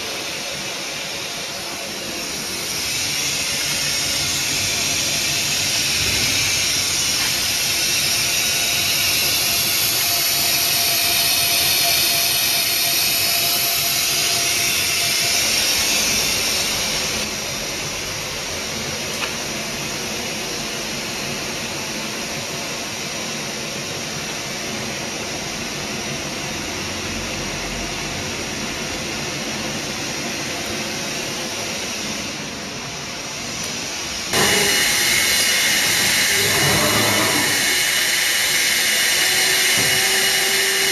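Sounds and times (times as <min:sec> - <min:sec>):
rushing machinery hiss: 0:00.0 - 0:24.8, 0:29.2 - 0:40.9.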